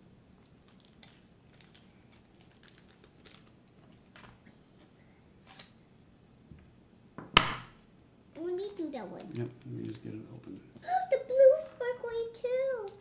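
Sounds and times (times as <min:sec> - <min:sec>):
plastic packets clicking: 0:00.4 - 0:04.4.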